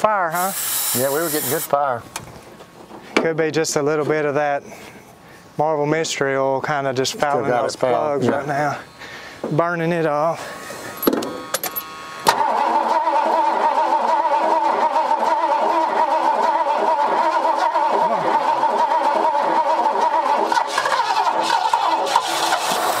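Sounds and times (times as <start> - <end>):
car engine starting and running: 10.9 - 23.0.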